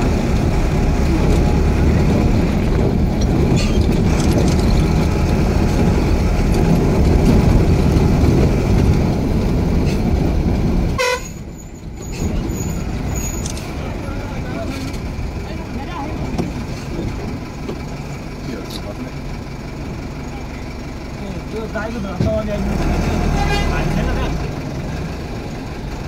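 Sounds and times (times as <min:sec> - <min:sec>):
vehicle engine and road noise: 0:00.0 - 0:26.0
car horn honk: 0:11.0 - 0:11.4.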